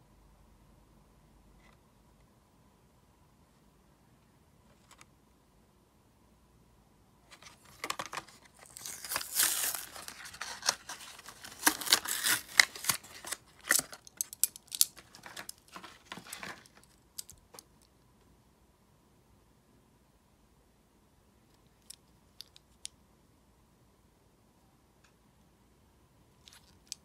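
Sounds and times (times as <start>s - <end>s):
plastic blister crinkling: 7.4s - 16.9s
cardboard ripping: 8.3s - 13.9s.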